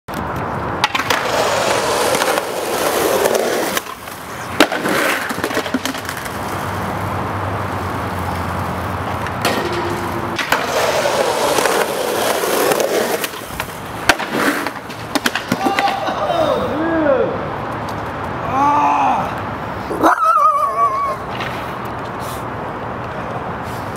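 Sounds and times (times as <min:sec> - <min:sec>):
skateboard clacking on ground: 0:00.1 - 0:16.5, 0:21.0 - 0:22.2
skateboard wheels on concrete: 0:00.1 - 0:23.9.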